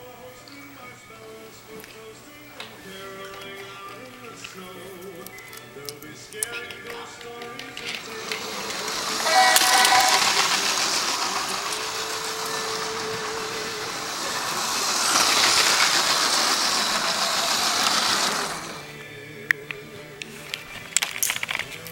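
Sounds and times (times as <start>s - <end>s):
horn-like chord: 9.2s - 12.6s.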